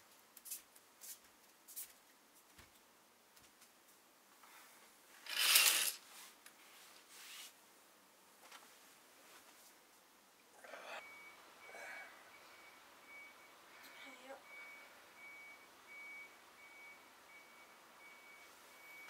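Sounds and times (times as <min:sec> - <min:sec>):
bedding rustling: 0:08.3 - 0:10.1.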